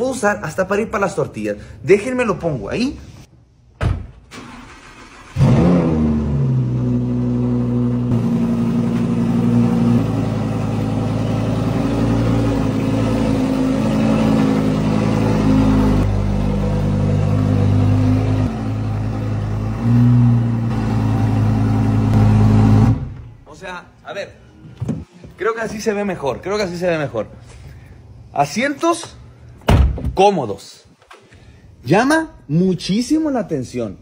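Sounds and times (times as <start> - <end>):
car engine starting and revving: 4.3 - 23.4.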